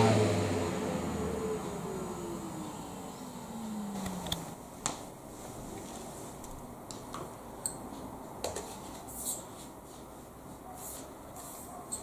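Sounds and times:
vacuum cleaner motor winding down: 0.0s - 4.6s.

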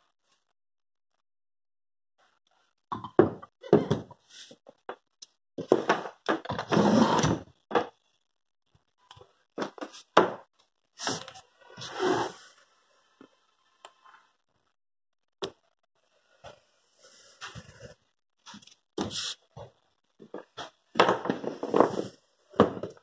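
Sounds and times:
scrape on wooden floor: 11.0s - 12.6s, 19.0s - 19.4s, 21.3s - 22.2s.

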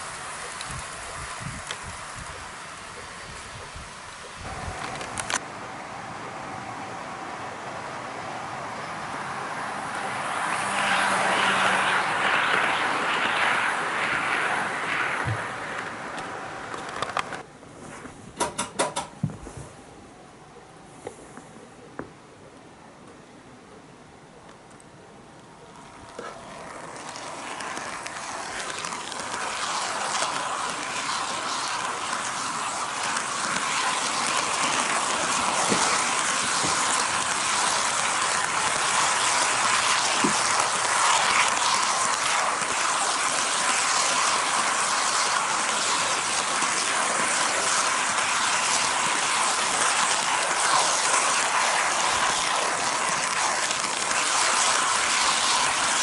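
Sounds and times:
faint motor whine: 0.0s - 18.3s, 19.2s - 56.0s
model train wheels rattling: 25.7s - 56.0s.

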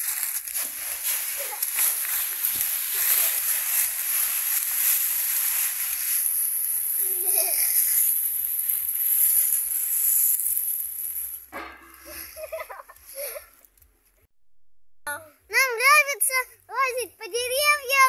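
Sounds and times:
dry leaves rustling and crunching: 0.0s - 13.4s.

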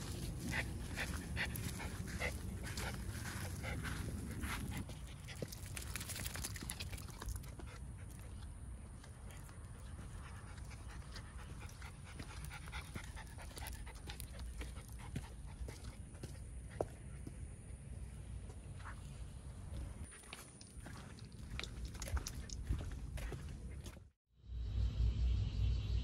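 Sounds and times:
dog panting: 0.0s - 17.3s
footsteps on concrete: 7.5s - 17.5s, 18.4s - 24.2s.

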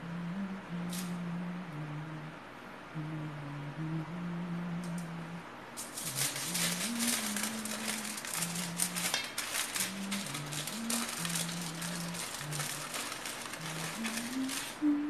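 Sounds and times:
soft tune of low notes: 0.0s - 5.6s
aluminium foil crinkling: 5.8s - 14.9s.

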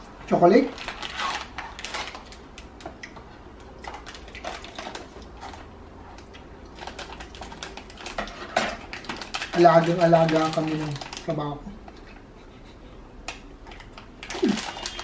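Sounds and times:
plastic bag crinkling: 0.5s - 2.8s, 3.9s - 5.7s, 6.7s - 11.6s, 13.7s - 15.0s.

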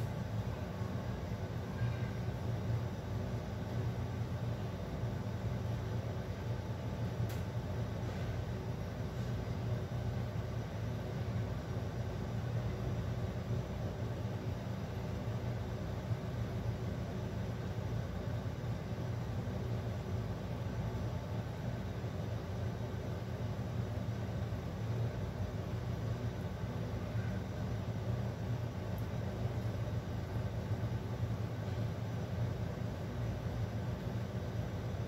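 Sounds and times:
low rumble with faint hiss: 0.0s - 35.0s.

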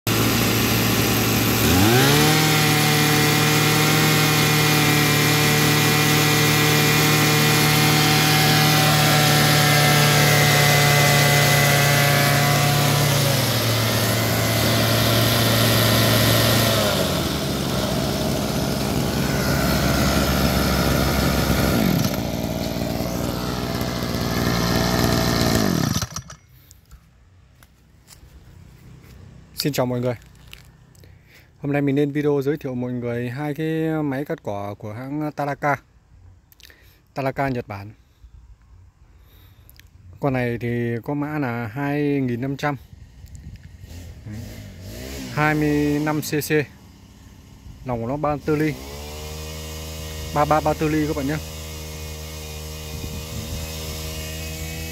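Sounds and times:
brush cutter engine revving: 0.1s - 26.8s, 42.0s - 54.9s.

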